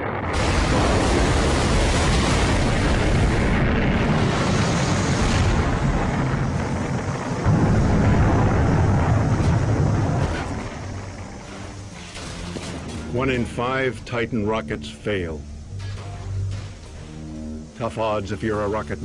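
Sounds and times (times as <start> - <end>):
rocket explosion rumble: 0.0 - 13.7.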